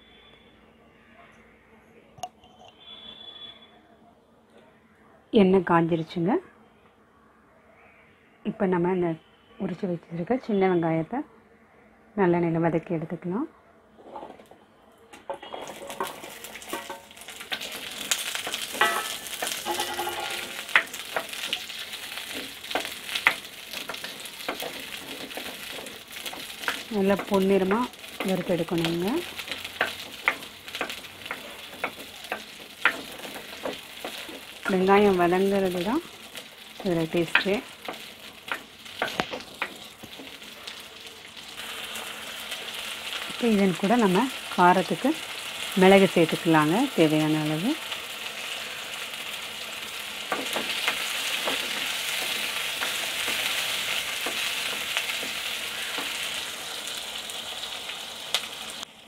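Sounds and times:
onions sizzling in oil: 0:15.3 - 0:59.0.

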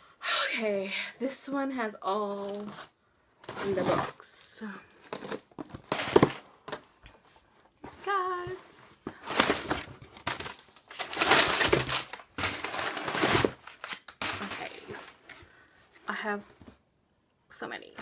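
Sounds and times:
packaging rustling: 0:05.0 - 0:07.0, 0:07.7 - 0:15.7.

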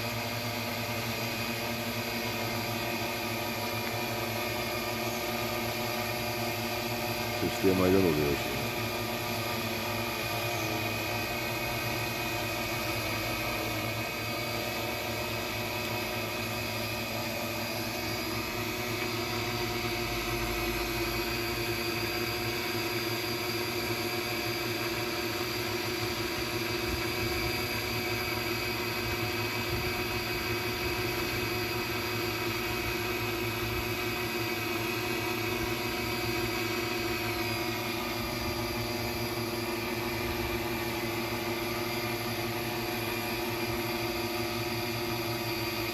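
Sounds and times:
drone propellers humming: 0:00.7 - 0:21.8, 0:33.6 - 0:45.9.

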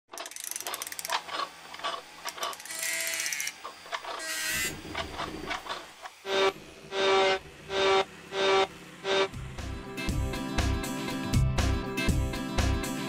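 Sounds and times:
sharp ratchet-like clicks: 0:00.1 - 0:06.1
short mechanical whirs: 0:00.1 - 0:09.4.

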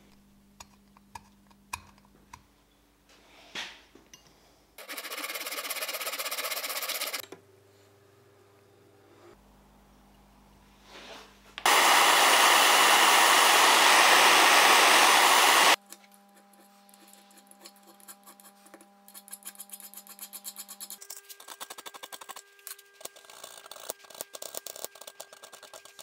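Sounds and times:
gas torch flame hissing: 0:11.6 - 0:15.8
file rasping on copper: 0:15.8 - 0:26.0.

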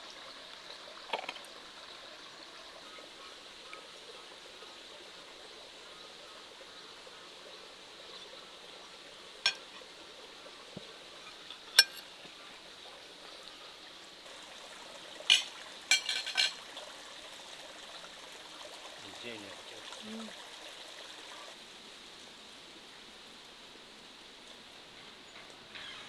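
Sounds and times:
flowing water: 0:00.0 - 0:26.0
cutlery and dishes clinking: 0:11.3 - 0:12.1, 0:15.3 - 0:16.6.

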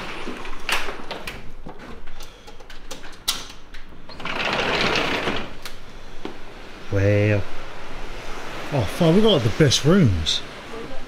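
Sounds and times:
latch clicks and rattles: 0:00.0 - 0:05.8
sliding glass door opening: 0:00.0 - 0:05.8
wind and surf: 0:05.8 - 0:11.0.

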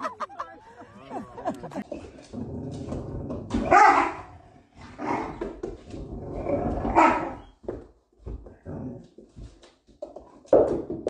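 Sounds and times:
dog growling: 0:01.8 - 0:07.5.

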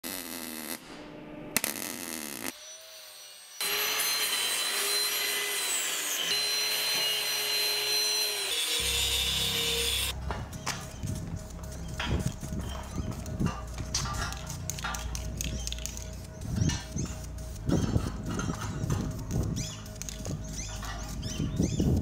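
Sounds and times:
angle grinder grinding metal: 0:02.6 - 0:22.0
welder arc crackling: 0:07.1 - 0:21.7.

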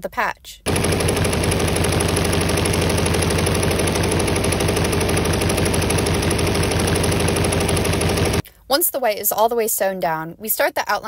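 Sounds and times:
embroidery machine stitching: 0:00.7 - 0:08.4.

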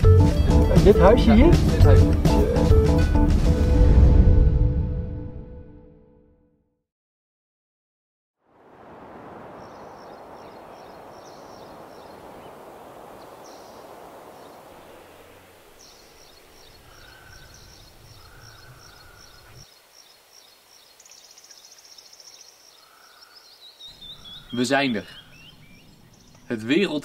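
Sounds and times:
steady rushing noise: 0:08.6 - 0:16.9
short bird calls: 0:08.8 - 0:19.7, 0:20.8 - 0:26.6.

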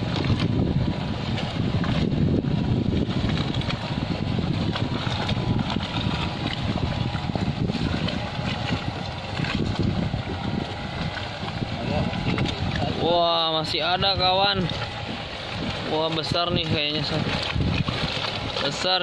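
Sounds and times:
boat rumbling: 0:00.0 - 0:19.0
wind buffeting microphone: 0:00.0 - 0:19.0.

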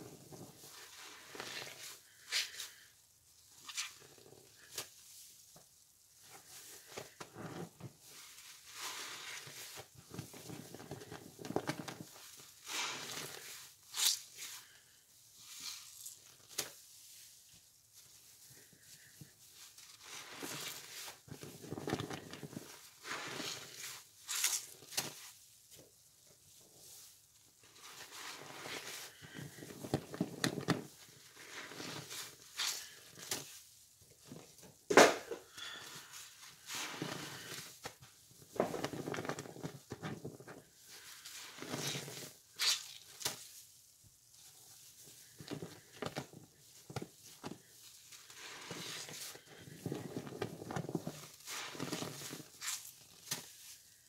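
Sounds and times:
wet sponges squelching: 0:06.2 - 0:25.4, 0:26.6 - 0:33.6, 0:35.5 - 0:37.9, 0:44.4 - 0:54.0.

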